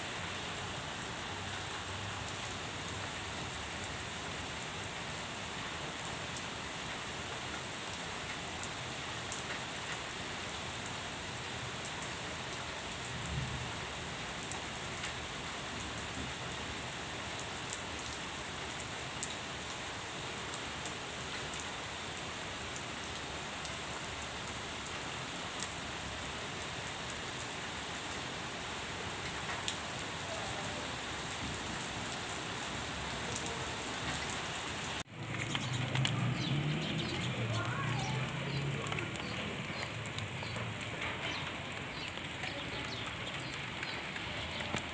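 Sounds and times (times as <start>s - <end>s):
rain hissing: 0.0s - 44.9s
hailstones ticking: 35.0s - 44.9s.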